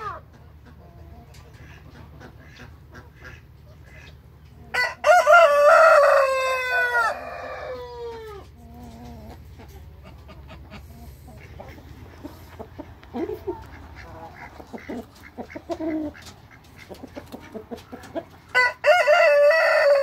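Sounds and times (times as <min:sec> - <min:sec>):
rooster crowing: 0:04.7 - 0:08.4, 0:18.5 - 0:20.0.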